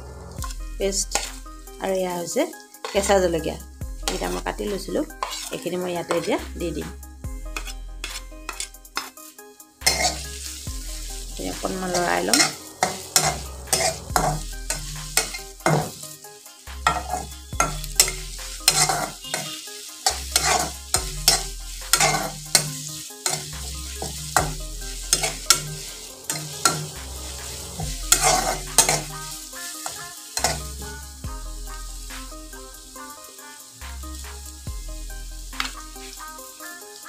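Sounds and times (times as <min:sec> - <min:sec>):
oil sizzling: 0:00.0 - 0:37.0
spatula scraping a pan: 0:00.4 - 0:01.4, 0:02.8 - 0:03.1, 0:04.1 - 0:06.4, 0:07.5 - 0:31.0.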